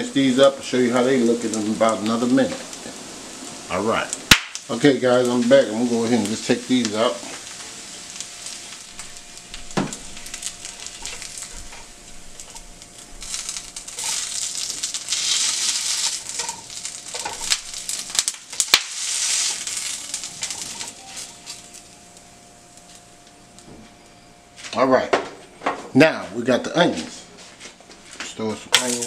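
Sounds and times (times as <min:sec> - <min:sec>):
hot oil sizzling in a frying pan: 0:00.0 - 0:23.6, 0:28.0 - 0:29.0
spatula scraping and tapping pan: 0:09.7 - 0:12.6, 0:13.2 - 0:21.6.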